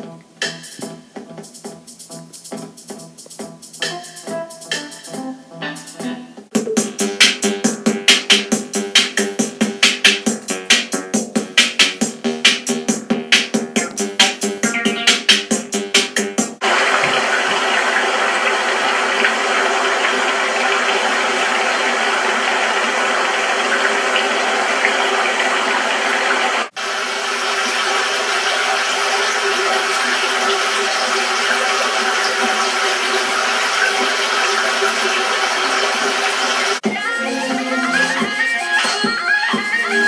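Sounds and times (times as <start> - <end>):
water rushing in rocky stream: 16.6 - 36.8.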